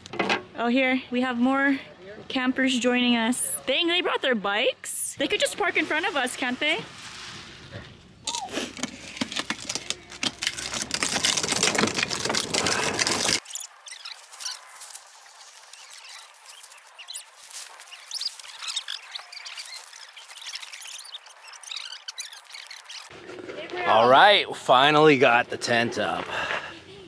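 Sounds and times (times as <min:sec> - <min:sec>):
camping gear rustling and clattering: 0:07.7 - 0:24.2
faint high chirps: 0:15.5 - 0:23.1.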